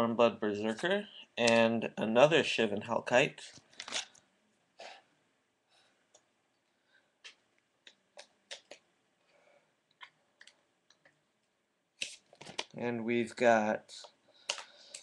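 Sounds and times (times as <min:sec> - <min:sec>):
cards in plastic sleeves clicking: 0:03.5 - 0:04.2, 0:12.0 - 0:12.8.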